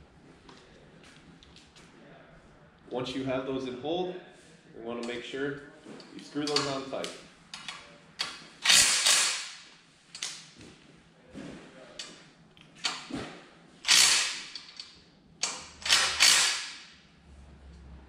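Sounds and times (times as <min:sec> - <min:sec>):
power drill tightening bolts: 0:07.6 - 0:09.4, 0:13.9 - 0:16.7.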